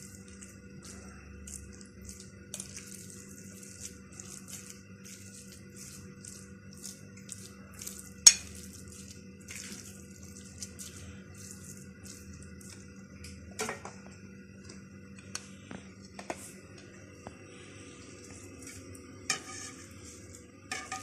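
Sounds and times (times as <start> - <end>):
spoon stirring minced meat: 0.0 - 13.1, 18.2 - 21.0
spoon clinking on glass: 8.2 - 8.6.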